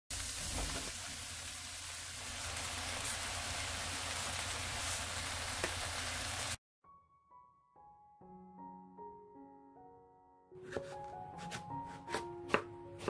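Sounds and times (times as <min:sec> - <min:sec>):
onion sizzling in oil: 0:00.1 - 0:06.6.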